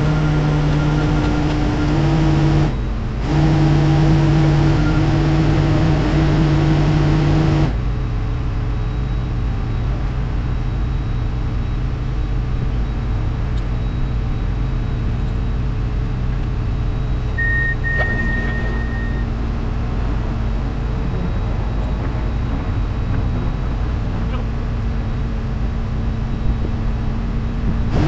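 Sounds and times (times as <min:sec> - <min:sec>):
construction equipment engines running: 0:00.0 - 0:28.0
high steady beep: 0:08.8 - 0:24.6.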